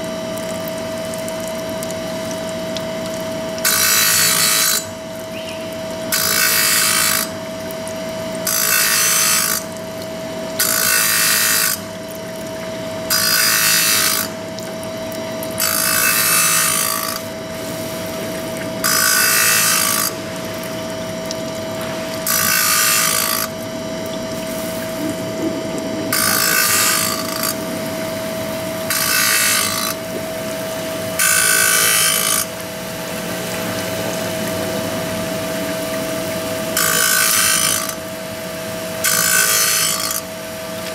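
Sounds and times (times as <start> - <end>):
motor hum: 0.0 - 40.9
grinding wheel rasping on saw teeth: 3.6 - 4.9, 6.1 - 7.3, 8.4 - 9.7, 10.6 - 11.8, 13.1 - 14.3, 15.6 - 17.2, 18.8 - 20.2, 22.2 - 23.5, 26.1 - 27.6, 28.9 - 30.0, 31.2 - 32.5, 36.8 - 38.0, 39.0 - 40.2.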